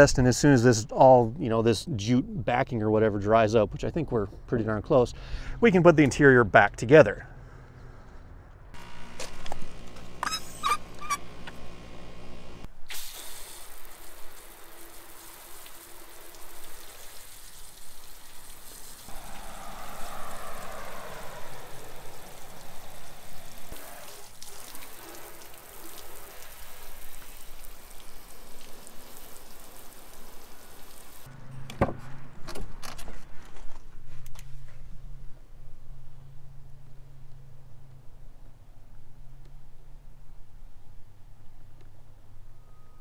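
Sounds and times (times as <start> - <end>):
hose spray on metal and glass: 12.8 - 19.2, 22.4 - 31.3.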